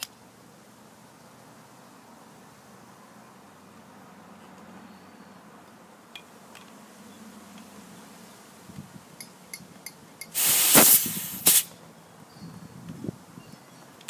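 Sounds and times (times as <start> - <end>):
gas hissing: 10.3 - 11.7.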